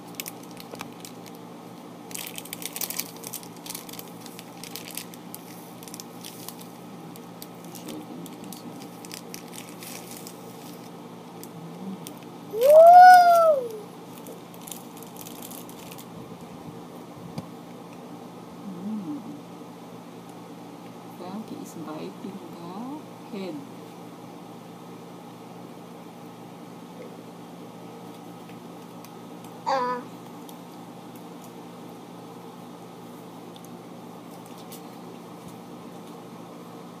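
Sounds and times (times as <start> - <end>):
plastic candy wrapper crinkling: 0.0 - 1.4, 2.0 - 12.3, 14.1 - 16.1.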